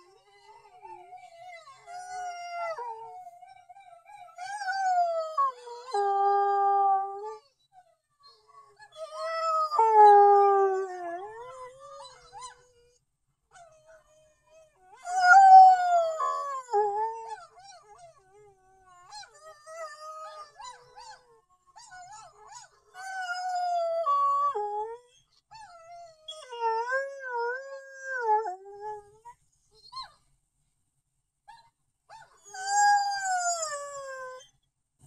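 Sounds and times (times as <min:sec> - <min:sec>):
dog howling: 0:04.3 - 0:07.4, 0:09.0 - 0:12.7, 0:14.9 - 0:18.3, 0:21.8 - 0:25.0, 0:25.6 - 0:29.1, 0:32.4 - 0:34.5.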